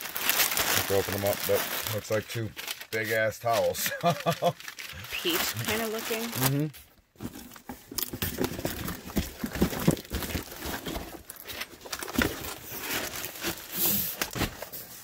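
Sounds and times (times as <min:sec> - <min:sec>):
plastic wrapping crinkling: 0:00.0 - 0:15.0
cardboard boxes being handled: 0:07.2 - 0:15.0.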